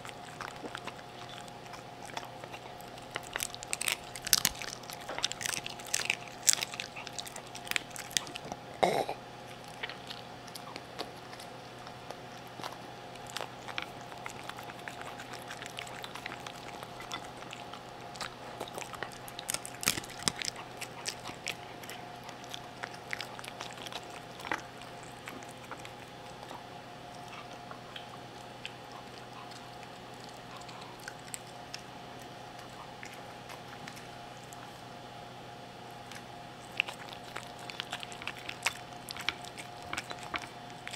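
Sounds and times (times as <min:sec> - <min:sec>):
dog crunching food: 0:00.0 - 0:40.9
dog burping: 0:08.8 - 0:09.2.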